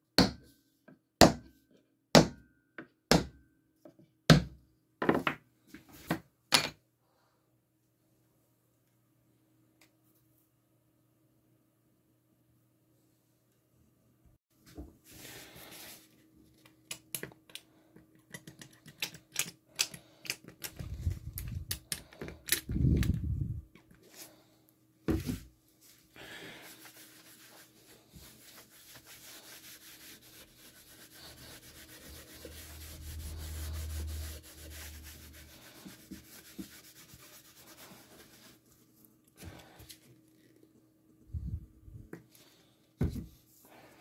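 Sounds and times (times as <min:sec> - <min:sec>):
cloth rag scrubbing wood: 0:25.8 - 0:38.7.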